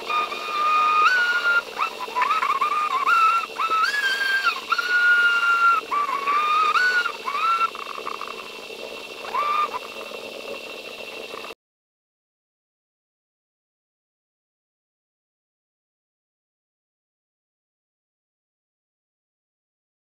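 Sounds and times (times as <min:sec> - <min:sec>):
high whistle-like tone: 0:00.0 - 0:08.5, 0:09.2 - 0:10.0
faint steady hum: 0:00.0 - 0:11.6.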